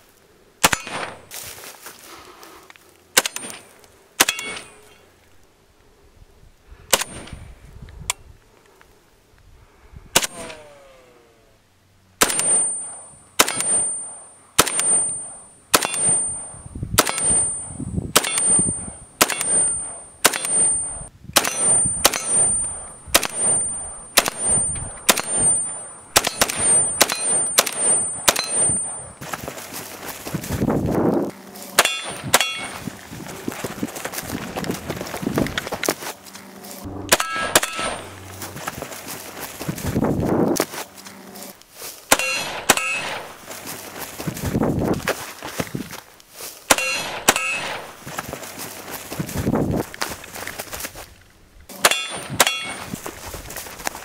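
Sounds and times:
rifle shots: 0.6s - 1.3s, 10.2s - 10.7s, 12.2s - 29.0s, 31.8s - 33.0s, 36.8s - 38.9s, 42.1s - 43.5s, 46.7s - 48.1s.

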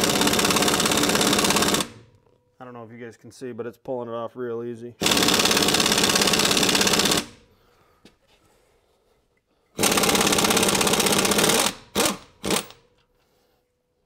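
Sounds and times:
impact wrench hammering: 0.0s - 2.0s, 5.0s - 7.4s, 9.8s - 12.8s.

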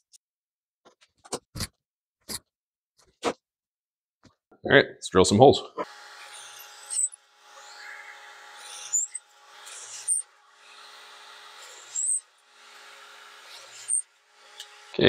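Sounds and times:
drill bit cutting wood: 5.8s - 15.0s
drill press motor hum: 5.8s - 15.0s.

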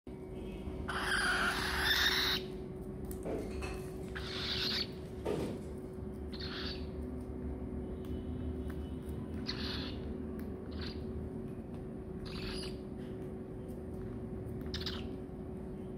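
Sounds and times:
faint steady hum: 0.1s - 15.9s
cockatiels hissing calls: 0.9s - 2.5s, 4.2s - 4.9s, 6.3s - 6.9s.

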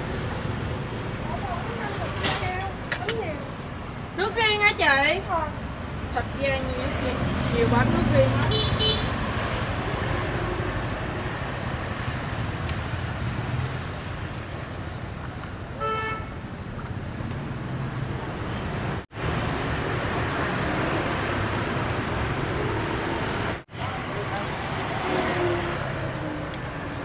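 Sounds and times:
street traffic: 0.0s - 27.0s
car horn toot: 8.5s - 9.2s.

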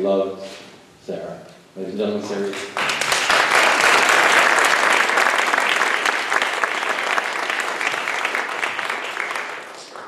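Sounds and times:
audience applauding: 2.5s - 10.0s.

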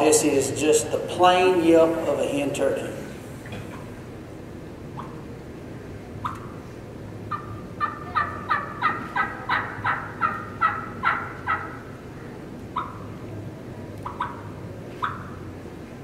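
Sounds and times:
turkey call yelps: 6.2s - 6.6s, 7.3s - 13.2s, 14.0s - 15.5s.

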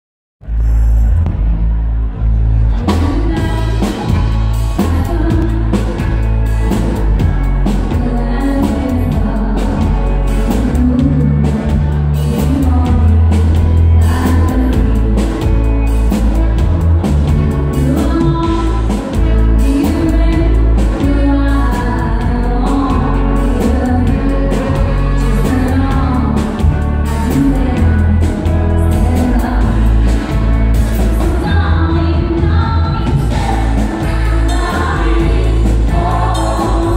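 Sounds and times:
live band playing: 0.4s - 36.9s
woman singing into microphone: 2.9s - 4.2s, 4.8s - 5.8s, 7.8s - 15.6s, 17.7s - 30.3s, 31.1s - 36.9s.

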